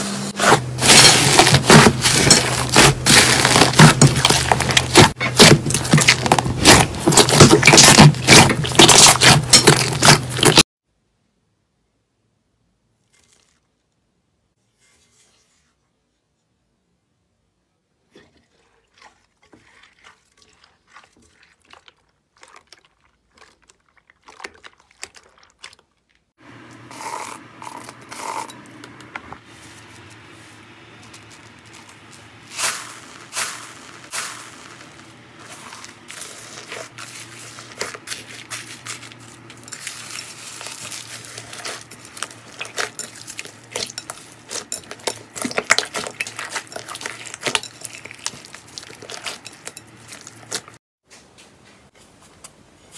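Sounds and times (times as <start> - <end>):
foam balls crunching and rustling: 0.4 - 10.7, 29.4 - 50.8
wet slime squishes: 0.8 - 10.6, 18.2 - 26.3, 29.6 - 50.8.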